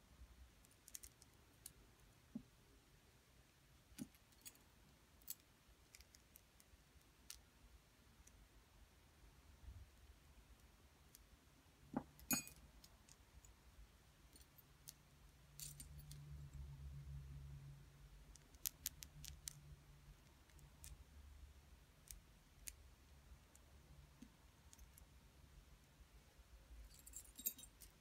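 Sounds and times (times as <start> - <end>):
metal rings clinking: 12.0 - 12.6, 26.9 - 28.0.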